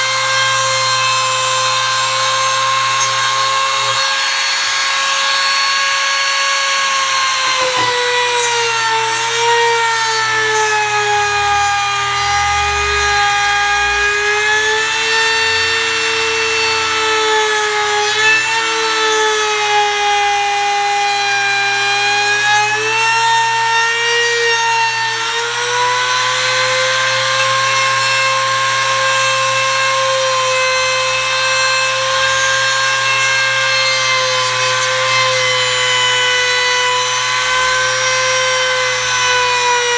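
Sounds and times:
router cutting wood: 0:00.0 - 0:39.9.

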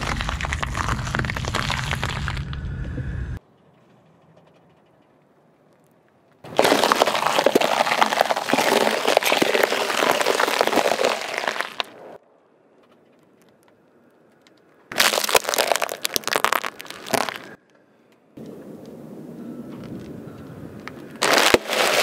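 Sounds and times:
foil crinkling under tyre: 0:00.0 - 0:02.6, 0:05.8 - 0:12.2, 0:13.0 - 0:17.6, 0:20.8 - 0:22.0
tyre crushing peppers: 0:06.5 - 0:11.9, 0:14.9 - 0:17.6, 0:21.2 - 0:22.0.

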